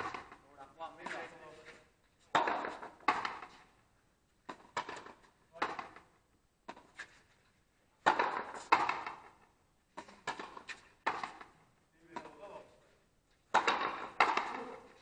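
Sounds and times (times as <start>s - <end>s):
ball struck by racquet: 0.0s - 0.4s, 2.3s - 3.7s, 4.4s - 7.0s, 8.0s - 12.5s, 13.5s - 14.9s
ball hitting wall: 2.3s - 3.5s, 4.5s - 6.1s, 8.0s - 9.4s, 10.0s - 11.5s, 13.5s - 14.8s.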